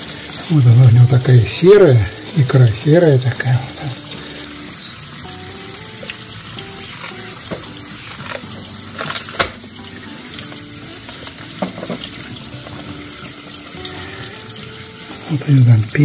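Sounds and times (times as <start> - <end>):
quiet background music: 0.0 - 16.0
tap water running into sink: 0.0 - 16.0.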